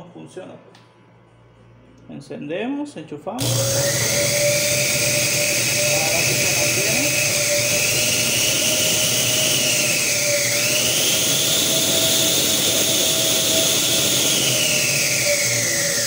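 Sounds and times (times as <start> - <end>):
blender motor whine: 3.4 - 16.0.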